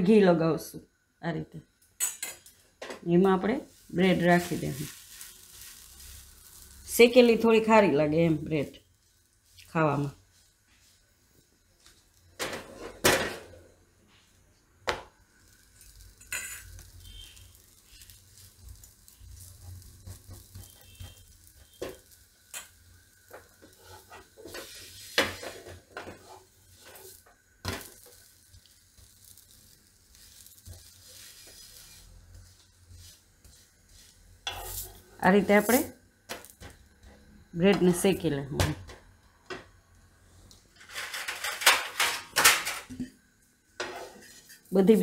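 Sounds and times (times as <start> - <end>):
faint sizzle of bread toasting: 0.0 - 45.0
metal spatula knocking and scraping pan: 34.4 - 34.8.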